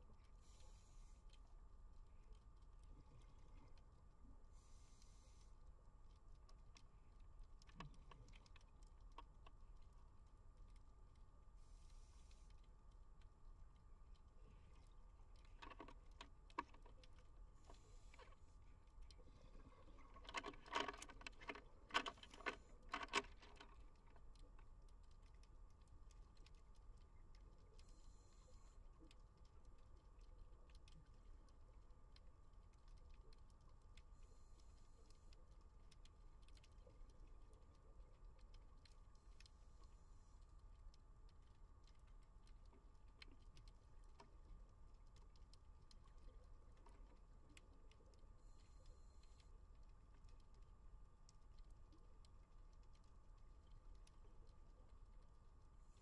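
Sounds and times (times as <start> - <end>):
faint ticking crackle underwater: 0.0 - 56.0
faint hisses: 0.3 - 1.3, 4.5 - 5.6, 11.5 - 12.5.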